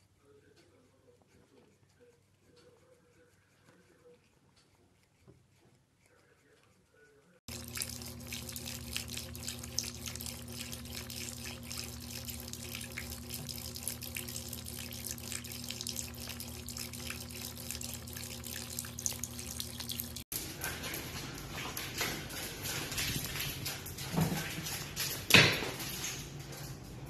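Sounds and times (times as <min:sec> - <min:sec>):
steady low hum: 0:05.8 - 0:27.0
tap water running: 0:07.5 - 0:26.7.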